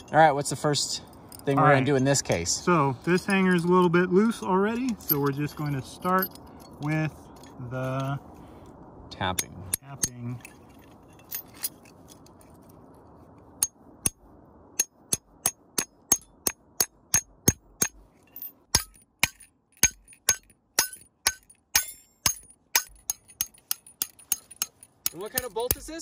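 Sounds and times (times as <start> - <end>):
hammer tapping on metal: 18.7 - 26.0.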